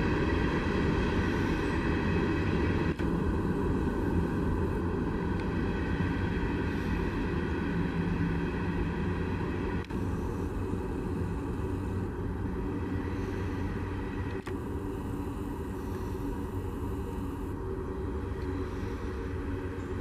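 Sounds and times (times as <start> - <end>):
diesel locomotives rumbling: 0.0 - 20.0.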